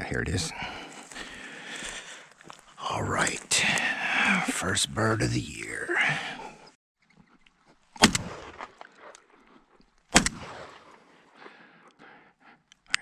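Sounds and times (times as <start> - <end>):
shotgun shots with echo: 8.0 - 8.6, 10.1 - 10.8.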